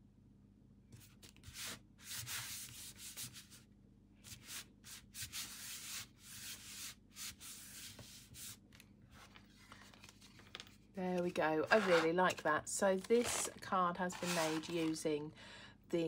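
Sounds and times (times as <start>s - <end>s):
hands rubbing paper: 4.3s - 8.6s, 11.6s - 12.2s, 13.0s - 15.0s.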